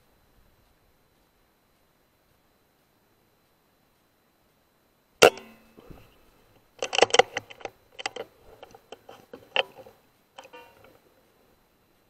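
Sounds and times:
air rifle mechanical clicks: 5.2 - 11.0.

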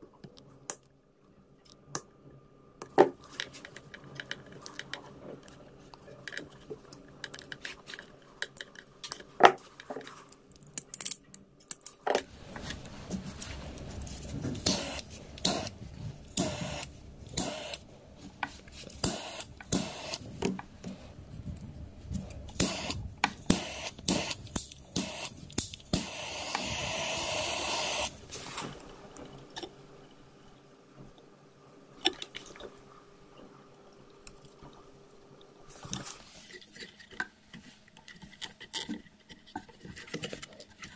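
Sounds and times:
clicks and rustles of wiring: 2.8 - 26.6, 35.7 - 40.9
steady hiss: 12.3 - 32.0.

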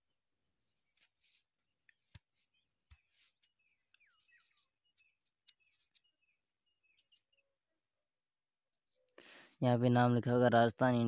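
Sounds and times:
faint distant bird chirps: 0.0 - 7.8.

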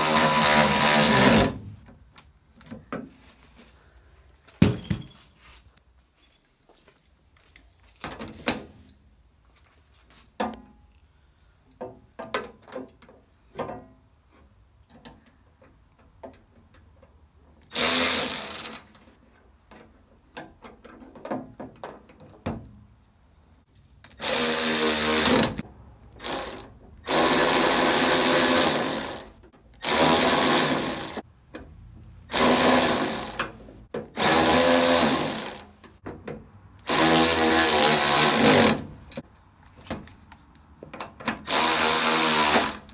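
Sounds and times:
cordless power tool bursts: 0.0 - 1.6, 17.7 - 18.8, 26.2 - 31.2, 32.3 - 33.5, 34.2 - 35.7, 36.9 - 38.9, 41.4 - 42.9.

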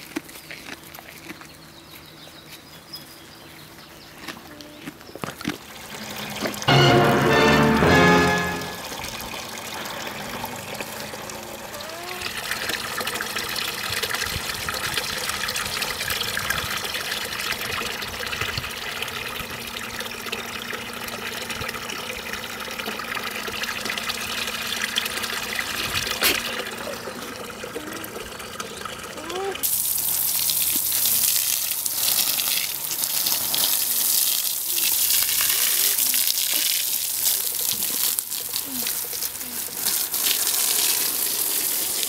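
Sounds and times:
water running from hose: 8.7 - 42.0.

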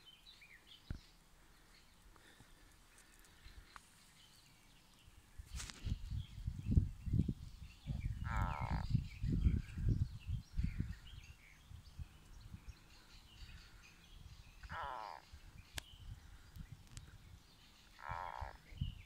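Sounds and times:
low rumbling on microphone: 5.8 - 17.5
frog croaking: 8.2 - 8.8, 14.6 - 15.2, 18.0 - 18.8.

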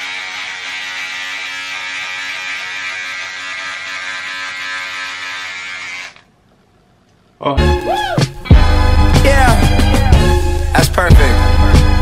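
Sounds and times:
electric beard trimmer buzzing: 0.0 - 6.3.

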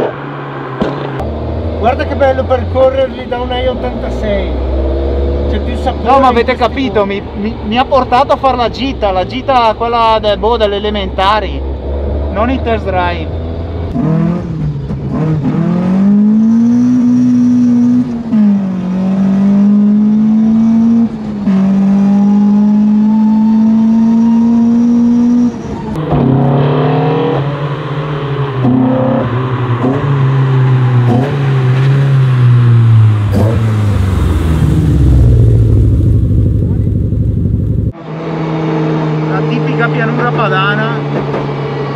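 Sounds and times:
car approaching with engine blips: 0.0 - 41.9
car engine accelerating: 0.0 - 41.9.

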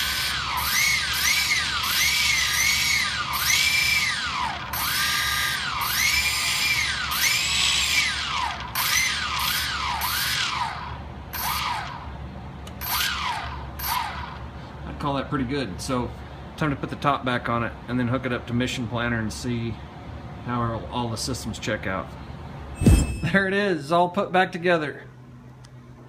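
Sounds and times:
drone motors whining: 0.0 - 12.0, 12.8 - 14.4.

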